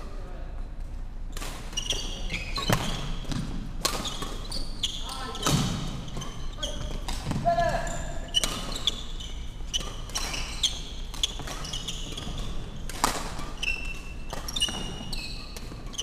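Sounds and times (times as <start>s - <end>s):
shoes squeaking on floor: 1.6s - 16.0s
racket striking shuttlecock: 9.7s - 15.9s.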